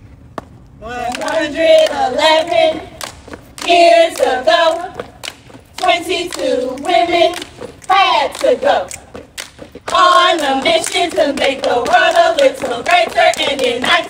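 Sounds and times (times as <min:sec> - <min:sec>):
women chanting in unison: 0:00.9 - 0:03.0, 0:03.6 - 0:05.2, 0:05.8 - 0:09.0, 0:09.9 - 0:14.0
sharp claps or stomps: 0:02.9 - 0:14.0.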